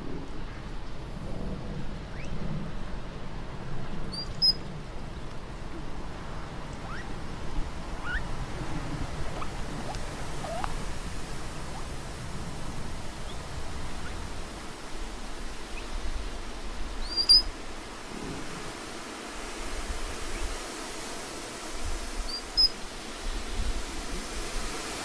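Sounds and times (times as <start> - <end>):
outdoor background hiss: 0.0 - 25.0
high animal chirps: 6.8 - 7.0, 8.0 - 8.2, 10.4 - 10.7, 17.0 - 17.4.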